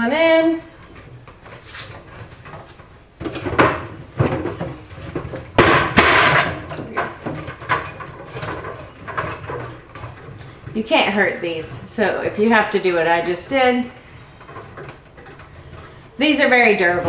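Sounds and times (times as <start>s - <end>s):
hollow plastic knocking: 2.3s - 10.8s.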